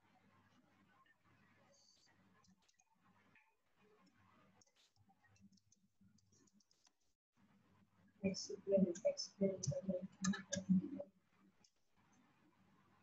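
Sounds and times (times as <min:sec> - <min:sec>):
keyboard typing clicks: 0:08.8 - 0:11.0.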